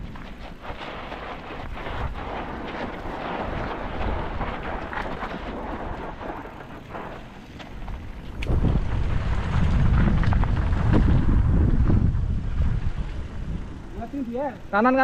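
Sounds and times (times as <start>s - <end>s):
bike rattles and clicks: 0.0s - 15.0s
bike tyre noise: 0.0s - 15.0s
wind buffeting microphone: 0.0s - 15.0s.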